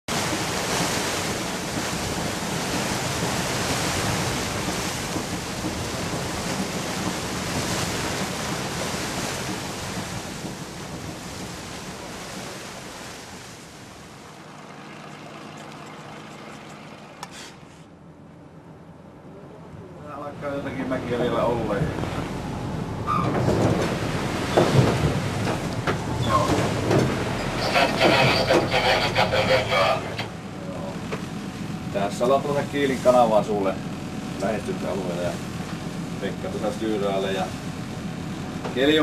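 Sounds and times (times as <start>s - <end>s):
water rushing: 0.1s - 17.7s, 20.2s - 39.0s
low steady hum: 10.8s - 39.0s.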